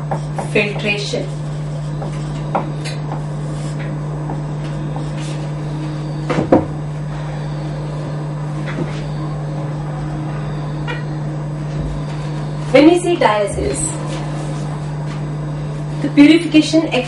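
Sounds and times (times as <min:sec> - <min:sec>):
low electrical mains hum: 0:00.0 - 0:17.0.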